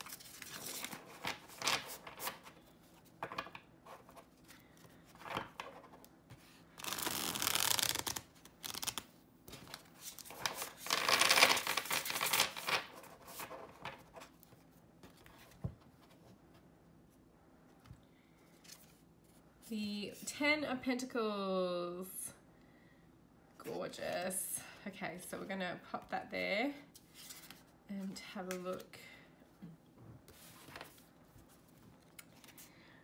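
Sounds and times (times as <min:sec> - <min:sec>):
cards being shuffled: 0:00.0 - 0:15.6.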